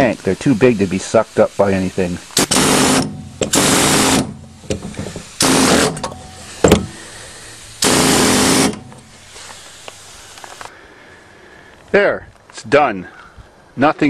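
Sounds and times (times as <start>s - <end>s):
power tool cutting metal: 2.4s - 7.0s, 7.8s - 9.1s.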